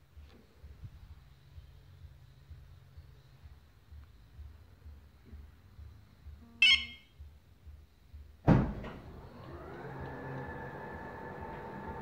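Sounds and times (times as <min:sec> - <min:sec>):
short beep: 0:06.4 - 0:07.1
car engine starting and idling: 0:08.7 - 0:12.0.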